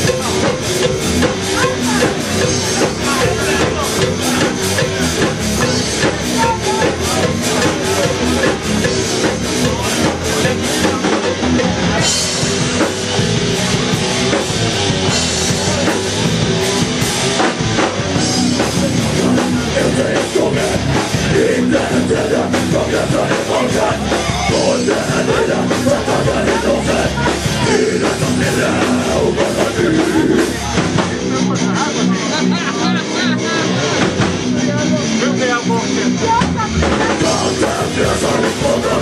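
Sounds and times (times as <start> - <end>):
driving drum kit: 0.0 - 39.0
electric guitars: 0.0 - 39.0.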